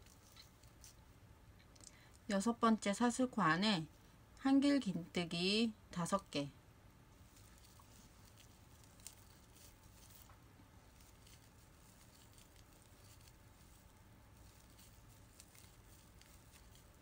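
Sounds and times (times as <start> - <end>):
yarn rustling: 0.0 - 1.2, 7.0 - 17.0
low room hum: 0.0 - 17.0.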